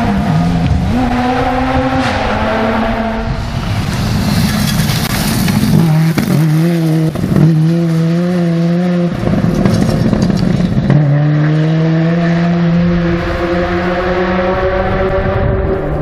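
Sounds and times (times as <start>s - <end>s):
rally car engine revving high: 0.0s - 16.0s
tyres hissing on gravel: 3.6s - 6.7s.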